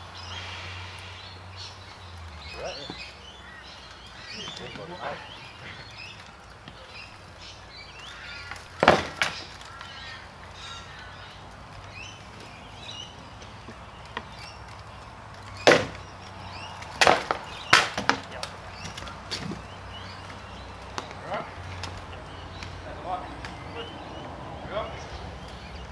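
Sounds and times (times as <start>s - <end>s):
birds chirping faintly: 0.0s - 25.9s
rattan swords striking shields: 8.8s - 9.5s, 15.6s - 16.0s, 17.0s - 18.3s.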